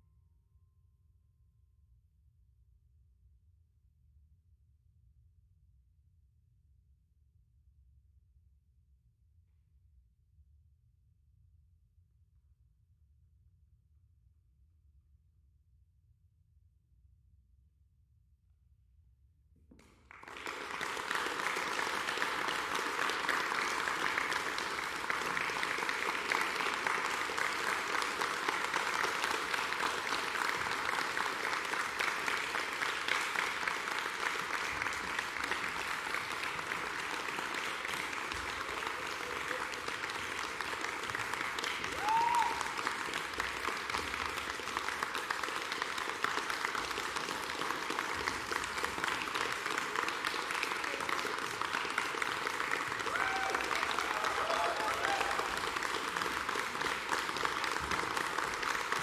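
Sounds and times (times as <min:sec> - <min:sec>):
audience applauding: 0:19.8 - 0:59.0.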